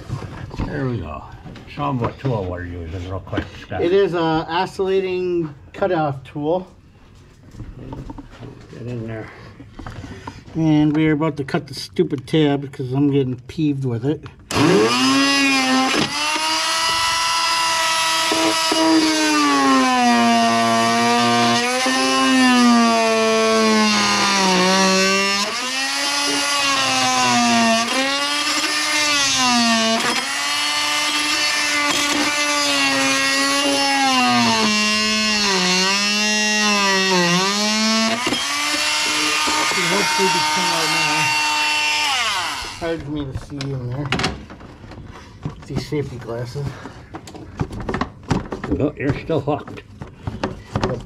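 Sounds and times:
oscillating multi-tool cutting: 14.5s - 43.0s.

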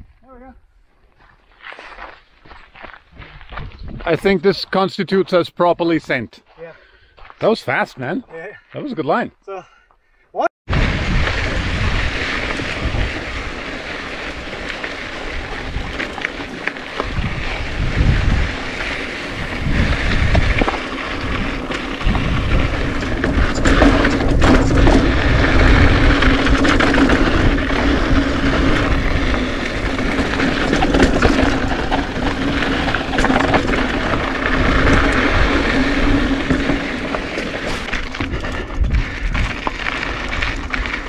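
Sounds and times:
wind buffeting microphone: 3.1s - 4.2s, 10.7s - 41.0s
bike rattling over rock: 10.7s - 41.0s.

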